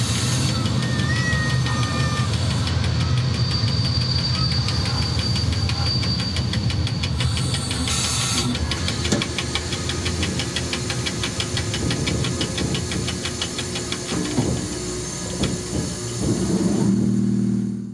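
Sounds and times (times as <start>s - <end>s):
locomotive cab hum: 0.0s - 17.9s
rapid ticking clatter: 0.4s - 15.7s.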